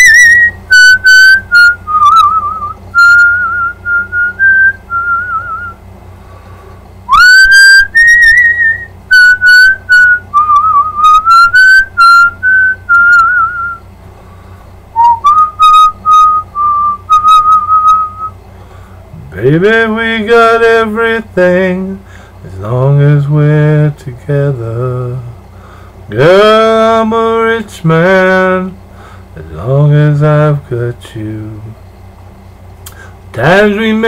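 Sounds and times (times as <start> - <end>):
man whistling a melody: 0.0 - 5.8, 7.1 - 13.9, 14.9 - 18.4.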